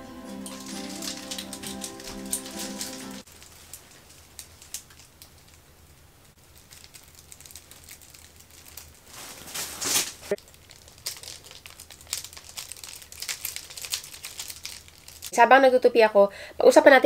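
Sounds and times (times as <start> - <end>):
laundry rustling: 0.0 - 4.7, 8.9 - 10.4.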